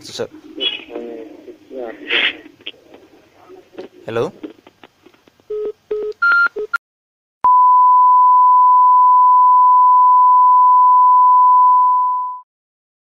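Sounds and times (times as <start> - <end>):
steady single-pitch test tone: 7.5 - 12.4.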